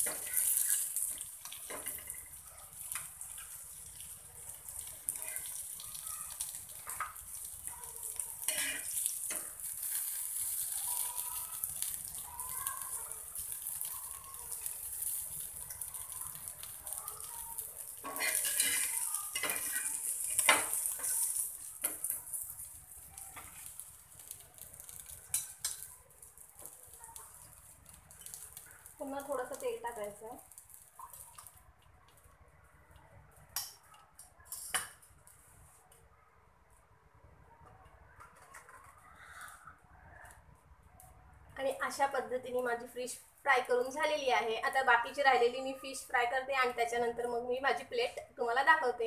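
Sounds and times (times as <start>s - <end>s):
fish sizzling in oil: 0.0s - 32.3s
utensil scraping a pan: 8.4s - 10.6s, 18.0s - 21.5s.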